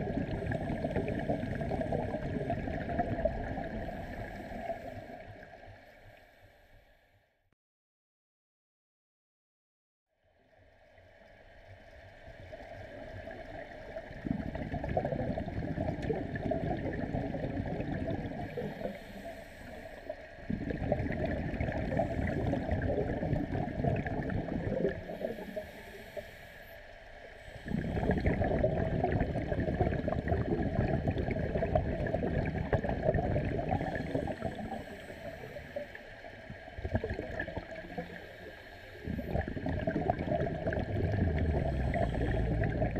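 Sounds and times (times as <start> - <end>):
underwater regulator bubbling: 0.0 - 5.0, 14.1 - 19.8, 20.5 - 26.2, 27.6 - 42.9
faint hum: 11.2 - 42.9.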